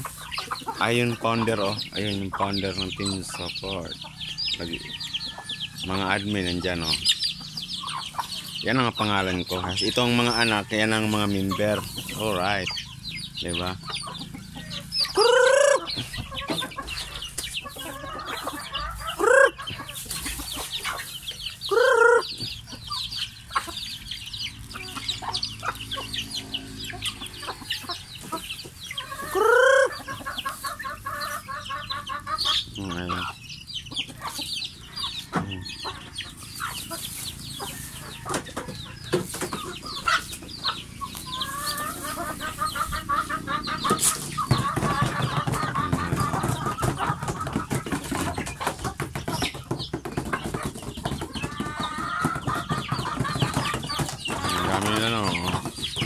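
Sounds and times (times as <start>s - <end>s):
chickens clucking: 0.0s - 56.0s
loud short rising chicken calls: 15.0s - 16.2s, 17.8s - 19.6s, 21.7s - 22.4s, 29.0s - 32.6s.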